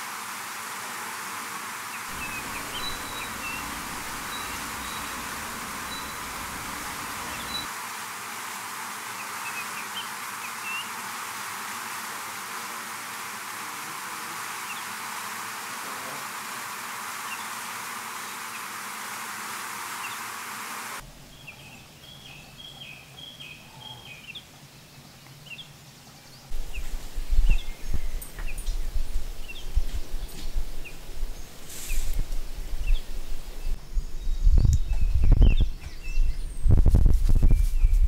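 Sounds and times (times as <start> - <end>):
steady hiss: 0.0 - 21.9, 26.4 - 34.2
songbirds chirping: 1.8 - 8.0, 14.5 - 15.1, 16.6 - 18.8, 19.9 - 36.8
low gusty rumbling: 2.1 - 7.7, 26.5 - 38.0.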